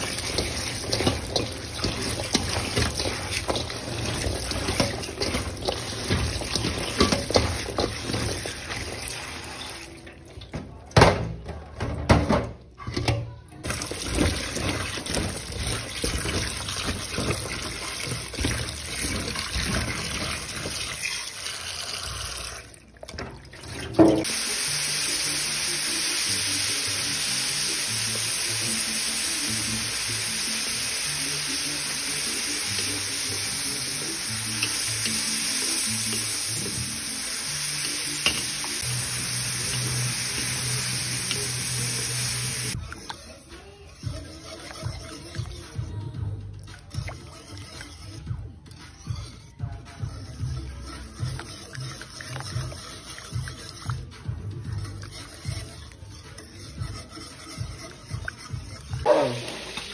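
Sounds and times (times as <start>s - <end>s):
beans sizzling in a wok: 0.0s - 9.8s, 24.2s - 42.8s, 57.0s - 59.9s
water running and splashing: 0.0s - 10.4s, 13.6s - 43.0s, 50.3s - 59.9s
background music: 23.7s - 59.9s.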